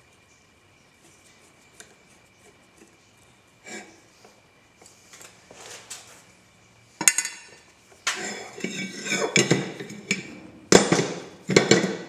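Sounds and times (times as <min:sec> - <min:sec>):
metal clanking and scraping: 0:07.0 - 0:12.0.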